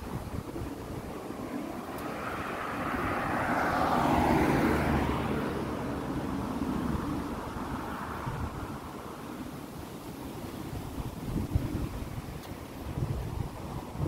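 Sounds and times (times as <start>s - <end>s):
van driving past: 1.3s - 9.4s.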